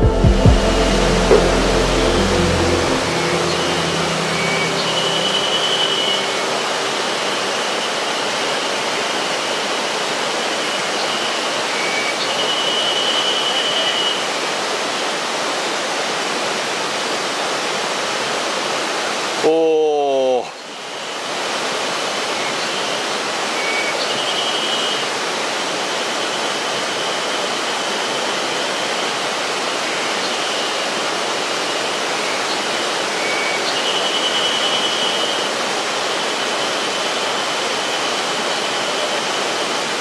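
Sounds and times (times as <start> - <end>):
river water rushing over rocks: 0.8 - 19.6, 20.6 - 40.0
faint high-pitched call: 0.9 - 8.2.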